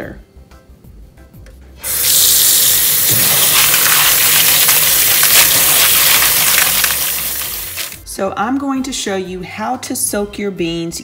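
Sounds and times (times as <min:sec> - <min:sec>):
faucet water gushing: 0:01.8 - 0:08.0
hands stirring dry beans: 0:01.8 - 0:08.0.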